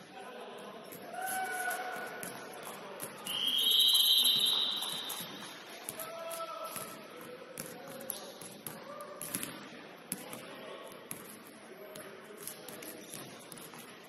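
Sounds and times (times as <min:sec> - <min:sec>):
referee's whistle blast: 0:03.3 - 0:05.1.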